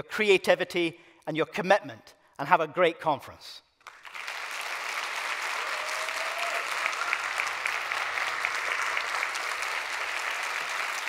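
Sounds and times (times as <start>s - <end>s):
large audience applauding: 3.8s - 11.0s.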